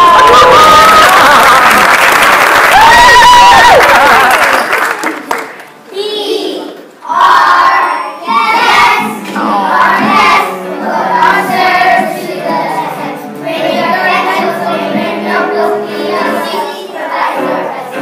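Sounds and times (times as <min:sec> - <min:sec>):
children singing together: 0:06.1 - 0:18.0
instrumental music: 0:08.3 - 0:18.0.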